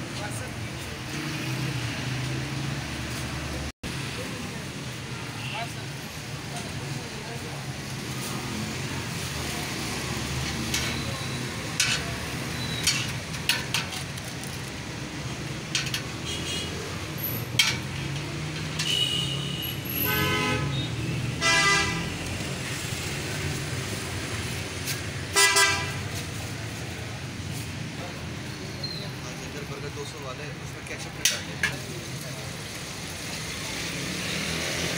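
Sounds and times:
road traffic: 0.0 - 34.9
metal spatula on steel griddle: 10.4 - 16.7, 17.3 - 19.3, 31.2 - 31.9.

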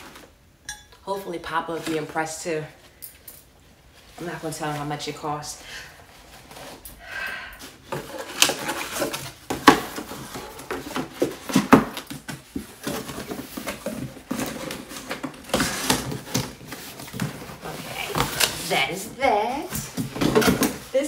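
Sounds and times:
cardboard rustling and scraping: 0.0 - 0.4, 7.7 - 21.0.

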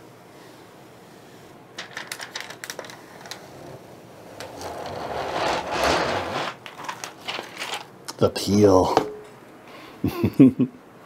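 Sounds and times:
plastic film peeling crackles: 1.8 - 3.4.

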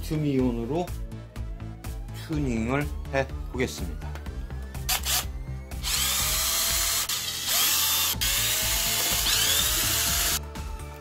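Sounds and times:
cordless drill motor running: 4.9 - 10.4.

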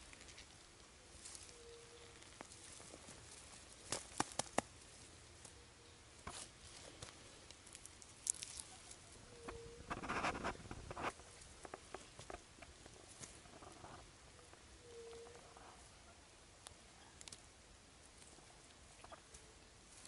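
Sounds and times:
rustling of carrot foliage: 0.0 - 20.0
soil crumbling: 6.4 - 8.9.

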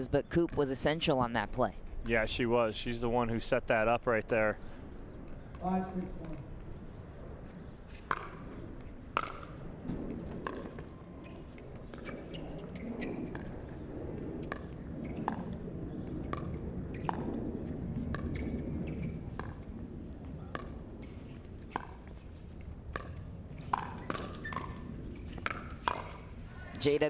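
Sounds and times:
paddles hitting plastic ball: 25.4 - 26.2.

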